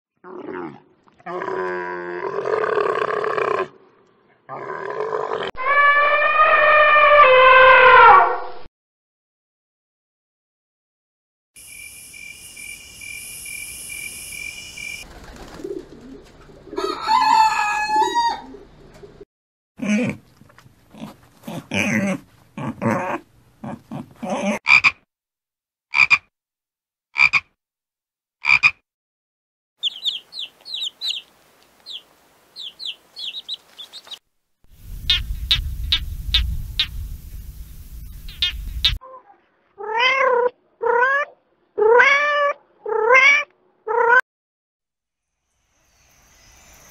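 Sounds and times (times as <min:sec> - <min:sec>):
long wavering animal call: 0:05.6 - 0:08.2
pigs grunting: 0:19.8 - 0:24.6
macaw chicks begging chirps: 0:29.8 - 0:34.2, 0:35.0 - 0:37.0, 0:38.1 - 0:39.0.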